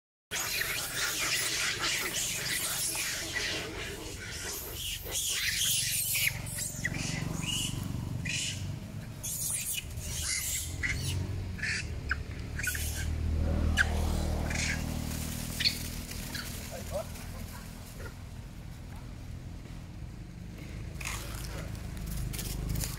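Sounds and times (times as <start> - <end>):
monkeys screeching: 0.3 - 18.2.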